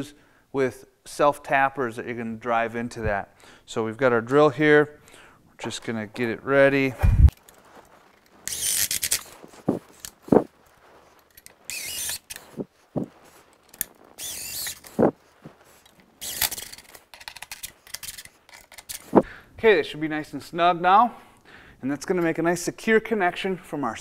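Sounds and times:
cordless drill whirring: 8.4 - 10.4, 11.4 - 12.7, 14.1 - 15.1, 16.2 - 16.9.

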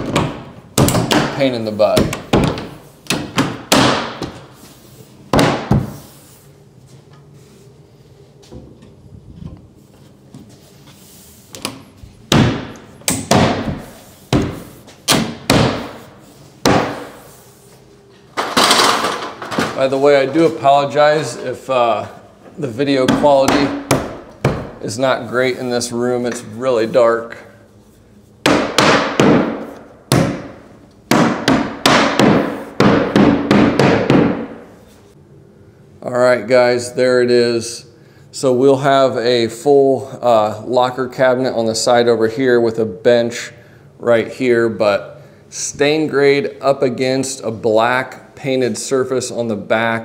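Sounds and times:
sharp knocks on wood panel: 31.1 - 34.5.

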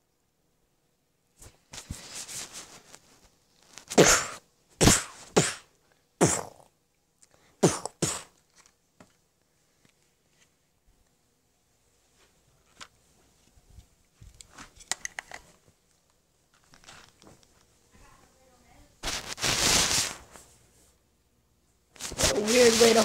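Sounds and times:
soft rustling: 1.3 - 4.0, 8.4 - 11.2, 11.8 - 14.9, 15.5 - 21.0, 21.9 - 23.0
sharp breathy mouth bursts: 3.9 - 6.7.

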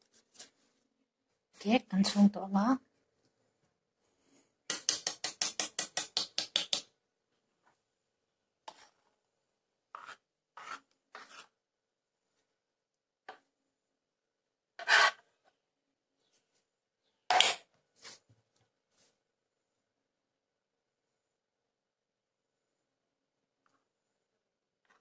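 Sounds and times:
wire whisk beating batter: 4.7 - 6.9.

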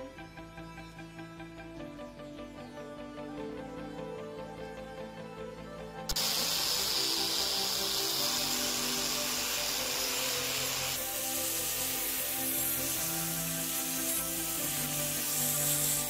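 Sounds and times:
background music: 0.0 - 16.0
angle grinder scouring metal: 6.1 - 16.0.

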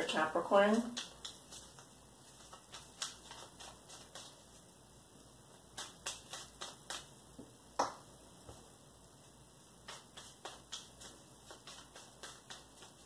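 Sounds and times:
cards being shuffled: 0.7 - 4.6, 5.7 - 7.1, 9.8 - 13.0.

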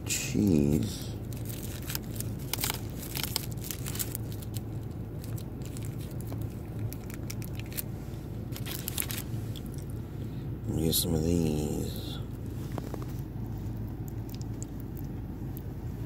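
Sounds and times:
steady low hum: 0.0 - 16.0
plastic wrapper crinkling: 1.2 - 10.0.

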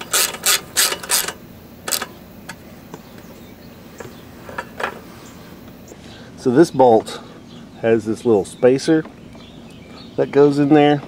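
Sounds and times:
socket ratchet wrench clicking: 0.0 - 2.6.

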